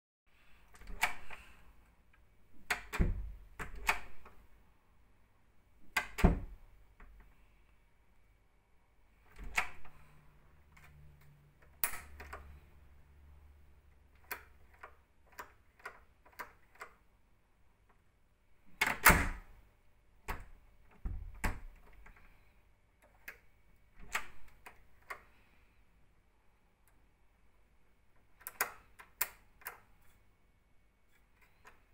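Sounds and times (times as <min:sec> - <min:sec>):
door latch clicking: 0:00.7 - 0:01.4, 0:02.6 - 0:04.4, 0:05.9 - 0:07.1, 0:09.3 - 0:09.9, 0:11.6 - 0:12.4, 0:18.7 - 0:19.5, 0:24.0 - 0:25.2, 0:28.4 - 0:29.8.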